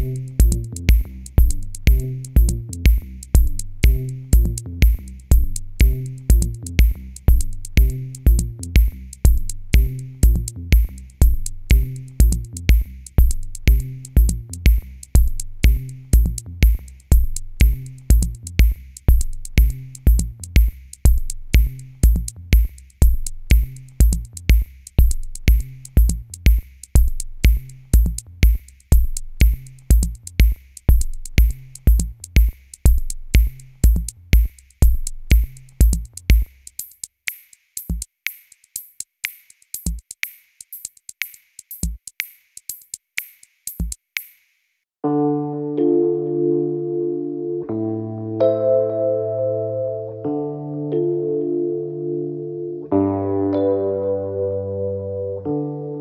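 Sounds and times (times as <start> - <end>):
bass line: 0.0 - 36.5, 45.0 - 56.0
electronic music with drum-machine beat: 0.0 - 44.4.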